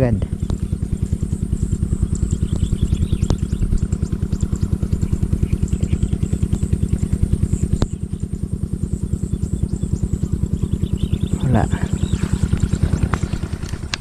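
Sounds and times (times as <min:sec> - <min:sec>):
small engine chugging: 0:00.0 - 0:14.0.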